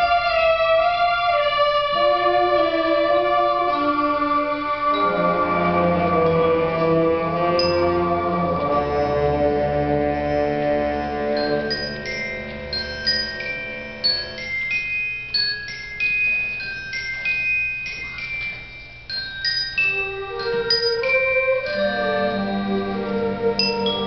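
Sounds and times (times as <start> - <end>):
soft held band chords: 0.0 - 14.7, 19.8 - 24.0
mallet percussion melody: 0.0 - 24.0.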